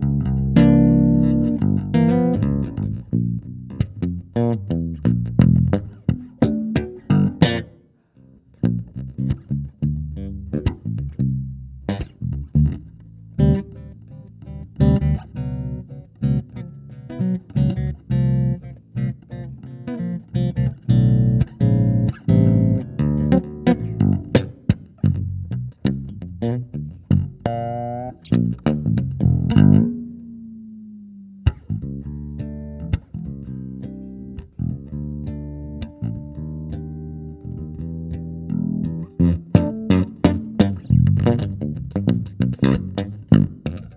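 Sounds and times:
electric bass guitar plucked notes: 0:00.0 - 0:43.9.

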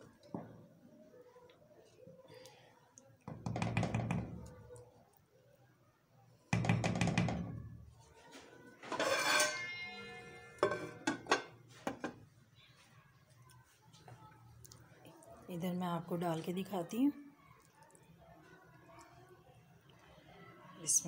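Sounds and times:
metal cookware clattering: 0:08.8 - 0:12.2
metal lid ringing: 0:08.9 - 0:11.5.

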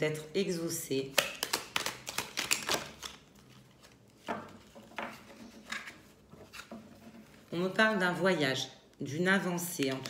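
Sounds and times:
cards clicking: 0:01.2 - 0:03.2.

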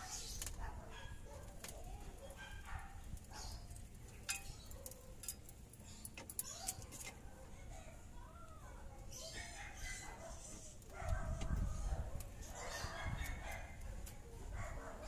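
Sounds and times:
jack metal clicks and scrapes: 0:03.7 - 0:07.2.

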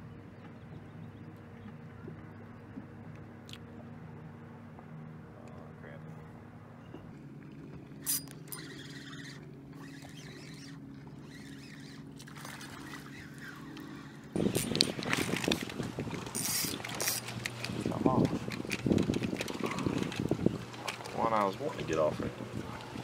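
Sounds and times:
steady low hum: 0:00.0 - 0:23.0
fishing reel gears ticking: 0:08.0 - 0:12.0, 0:16.2 - 0:20.2.

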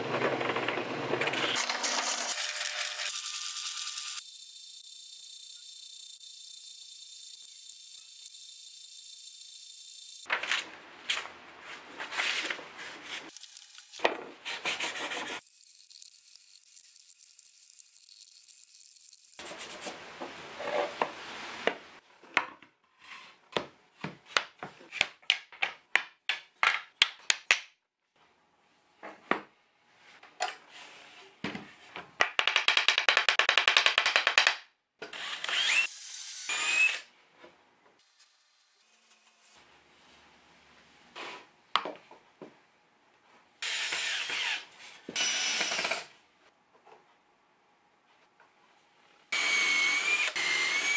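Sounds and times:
sandpaper rubbing on wood: 0:14.5 - 0:15.4.

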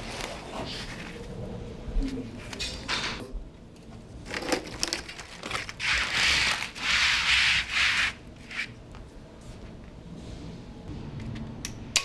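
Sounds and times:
plastic mat scraping rustle: 0:00.0 - 0:01.4, 0:04.7 - 0:08.7.

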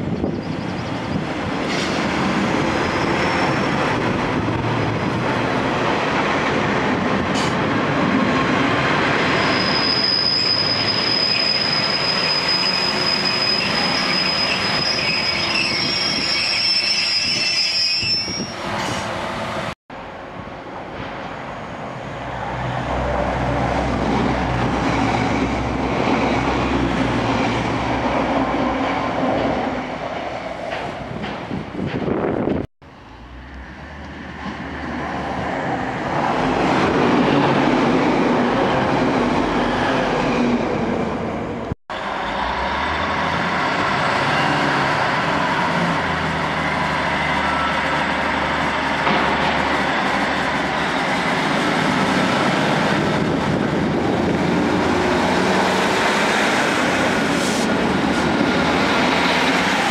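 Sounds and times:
train wheels squealing: 0:02.7 - 0:03.8, 0:09.2 - 0:19.1, 0:47.4 - 0:48.2
diesel train engine drone: 0:18.6 - 0:59.9.

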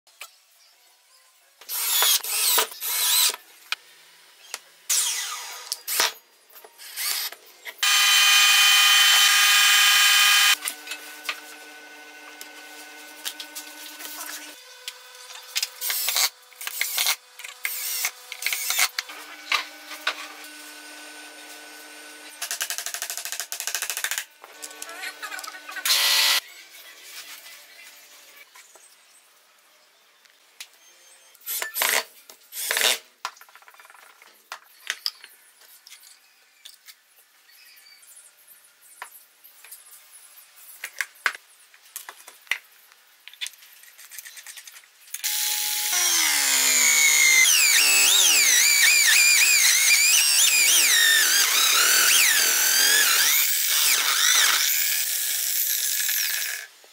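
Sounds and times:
electric drill boring into wood: 0:01.7 - 0:03.4, 0:04.9 - 0:06.1, 0:06.8 - 0:26.4, 0:45.2 - 0:56.7.

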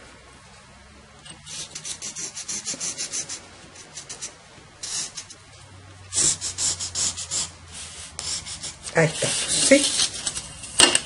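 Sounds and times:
marker scratching on paper: 0:01.5 - 0:05.4, 0:06.1 - 0:10.6.

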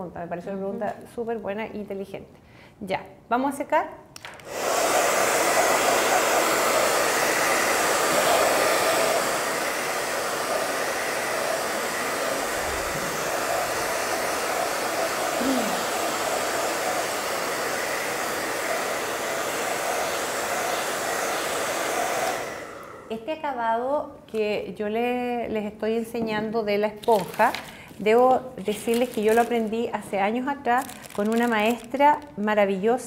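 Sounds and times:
hair dryer blowing: 0:04.4 - 0:23.2, 0:28.7 - 0:29.8.

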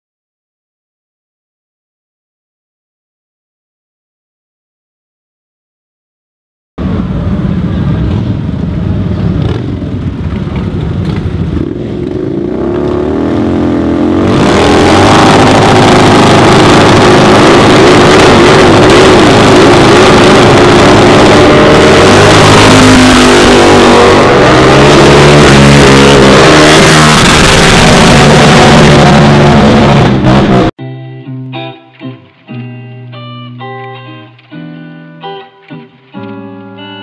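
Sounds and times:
motorcycle exhaust revving hard: 0:06.8 - 0:30.7
motorcycles pulling past: 0:06.9 - 0:30.7.

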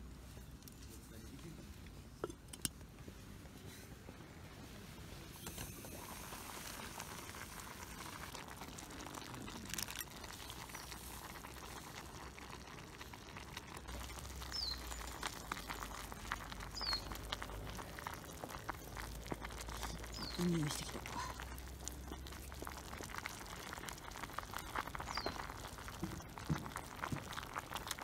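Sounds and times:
water boiling in a pot: 0:02.0 - 0:28.0.

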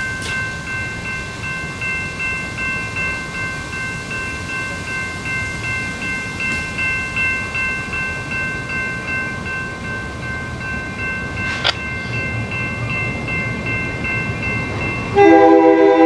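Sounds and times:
crossing warning bell ringing: 0:00.0 - 0:16.0
sharp click: 0:11.5 - 0:11.8.

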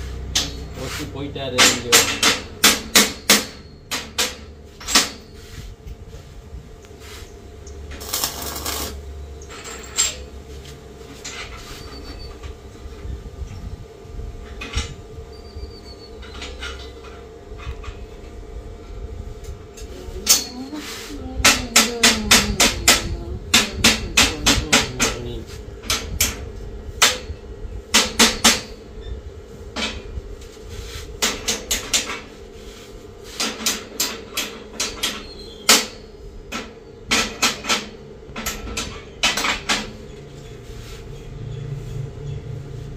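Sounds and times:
steady low hum: 0:00.0 - 0:42.9
hammer knocking on metal bars: 0:01.5 - 0:05.2, 0:21.4 - 0:25.3.

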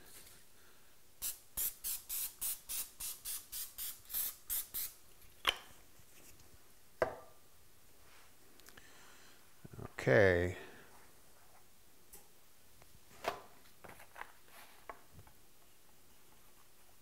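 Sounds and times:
cooking spray hissing: 0:01.2 - 0:05.0.

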